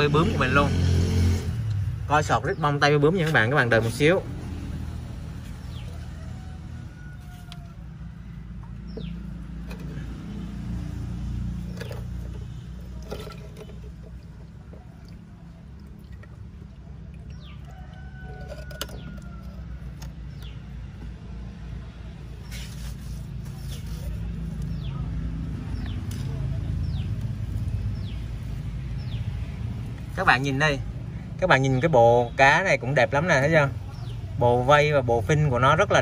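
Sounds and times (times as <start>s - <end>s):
rooster crowing faintly: 5.4s - 8.6s, 17.4s - 20.4s.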